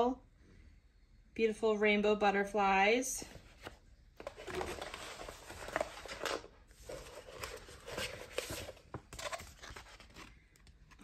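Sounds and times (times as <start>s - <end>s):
paper sheets rustling and sliding: 3.5s - 10.3s.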